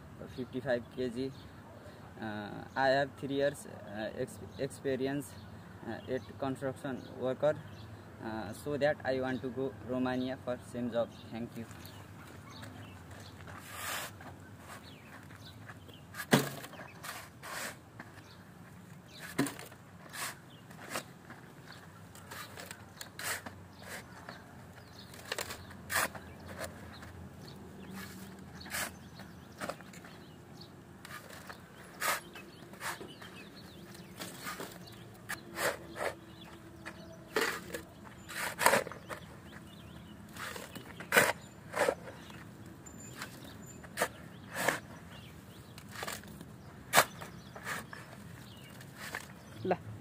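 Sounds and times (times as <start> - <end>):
shovel scraping into sand: 13.5 - 15.1, 16.1 - 17.8, 19.1 - 21.2, 22.2 - 24.2, 25.1 - 26.8, 31.1 - 33.5, 34.1 - 36.5, 37.3 - 39.2, 40.3 - 42.3, 42.9 - 46.3, 46.9 - 48.0.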